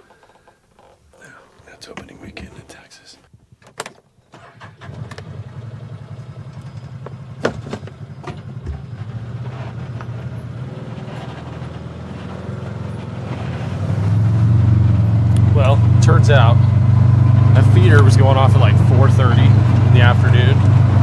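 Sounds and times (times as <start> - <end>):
utility vehicle engine running: 4.4 - 21.0
sharp knocks or rattles: 6.7 - 9.2.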